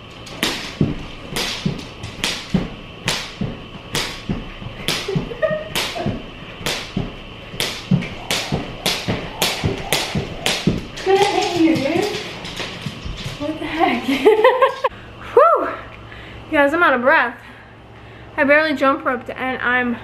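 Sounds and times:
feet landing thuds: 0:00.0 - 0:13.4
jump rope slapping floor: 0:00.0 - 0:13.6.

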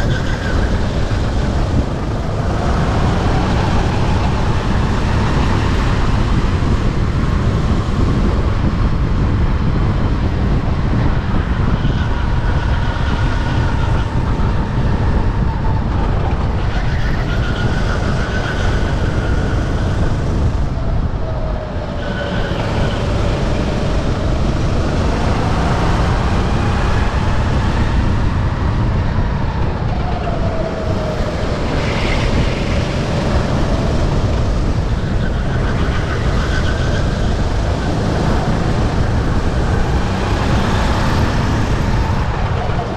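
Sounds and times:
heavy low rumble: 0:18.9 - 0:42.9.

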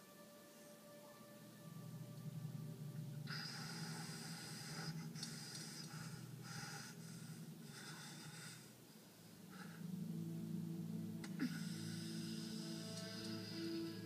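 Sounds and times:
low steady hum: 0:00.0 - 0:14.0
man breathing heavily: 0:03.2 - 0:10.1.

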